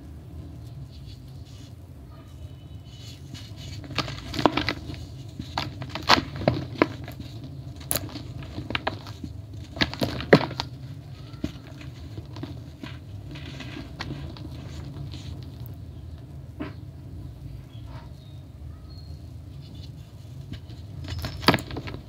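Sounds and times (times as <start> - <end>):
powder block crumbling by hand: 3.1 - 15.8, 19.7 - 22.0.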